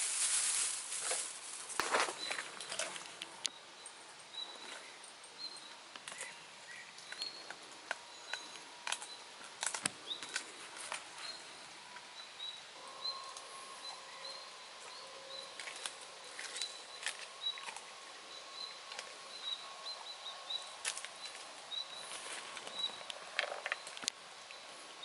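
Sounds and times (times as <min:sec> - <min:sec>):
dog chewing with wet crunches: 0:15.6 - 0:17.9.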